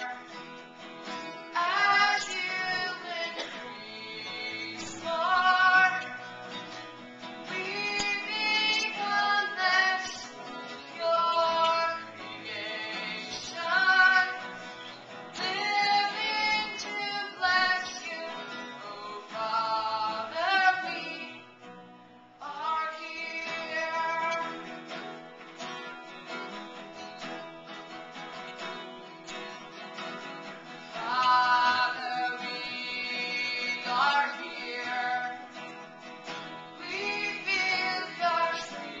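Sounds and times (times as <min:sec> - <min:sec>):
woman singing: 0:00.0 - 0:00.4, 0:01.5 - 0:06.4, 0:07.4 - 0:21.6, 0:22.4 - 0:24.8, 0:30.8 - 0:35.6, 0:36.7 - 0:39.0
guitar accompaniment: 0:00.0 - 0:39.0.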